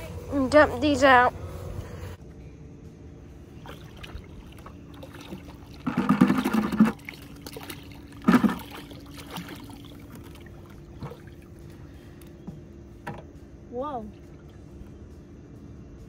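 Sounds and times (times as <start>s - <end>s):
water gushing from bucket: 3.7s - 11.5s.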